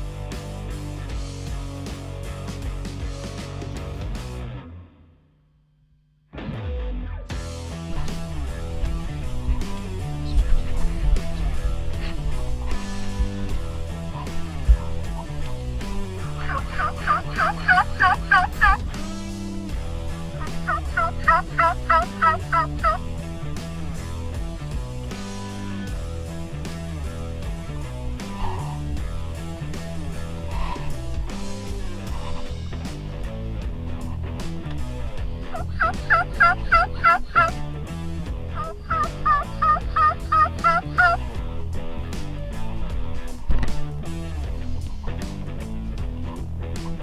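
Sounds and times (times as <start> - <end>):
background music: 0.0 - 5.2, 6.4 - 47.0
turkey calls: 9.3 - 19.3, 20.1 - 23.1, 28.2 - 28.9, 30.3 - 31.2, 35.5 - 37.6, 38.5 - 41.3.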